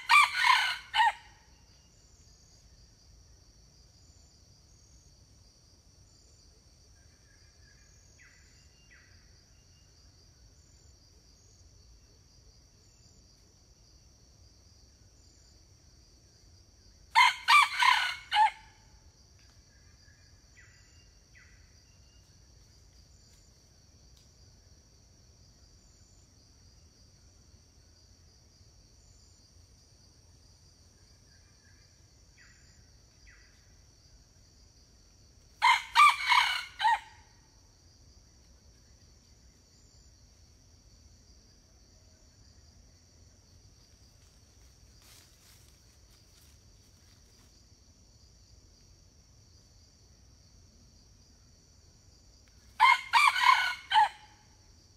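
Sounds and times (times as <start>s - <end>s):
rooster crowing: 0.0s - 1.4s, 17.1s - 18.8s, 35.6s - 37.3s, 52.8s - 54.5s
distant rooster crows: 0.0s - 1.5s, 17.1s - 18.8s, 35.6s - 37.3s, 52.7s - 54.5s.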